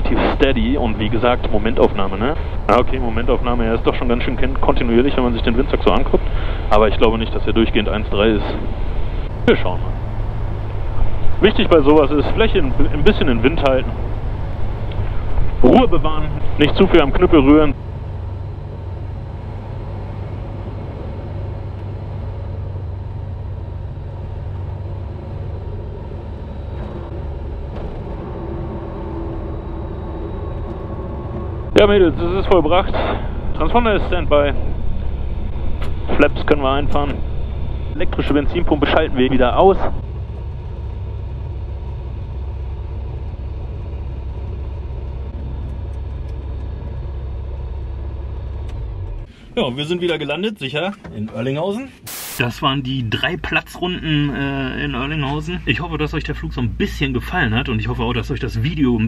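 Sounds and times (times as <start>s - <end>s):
light aircraft engine and propeller: 0.0s - 52.0s.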